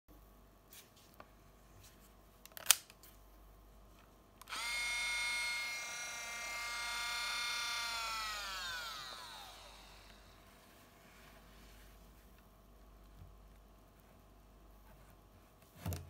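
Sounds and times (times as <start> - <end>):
camera electronics whine: 4.4 - 10.6.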